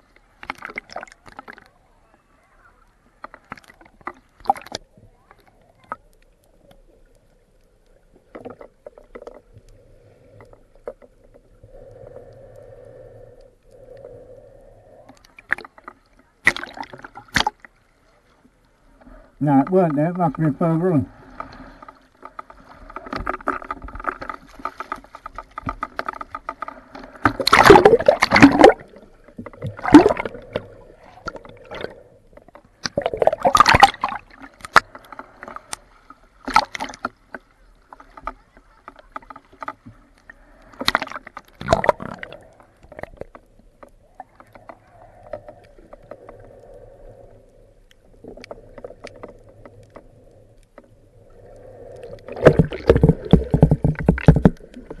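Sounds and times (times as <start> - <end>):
water splashing and sloshing: 0.0 - 55.0
loud splashes: 27.4 - 28.8.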